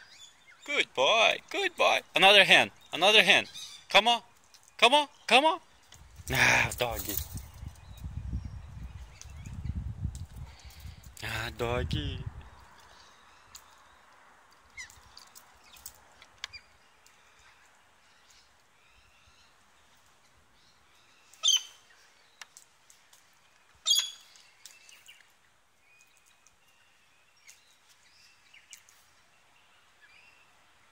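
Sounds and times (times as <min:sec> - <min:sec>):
bird chirps: 0:00.0 - 0:06.0, 0:14.7 - 0:22.6, 0:23.5 - 0:30.5.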